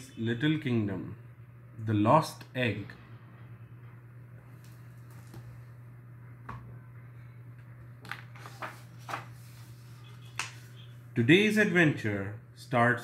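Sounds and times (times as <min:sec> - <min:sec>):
low steady hum: 0:00.0 - 0:13.0
paper rustles and taps: 0:05.0 - 0:05.5, 0:08.0 - 0:09.5, 0:10.3 - 0:10.6.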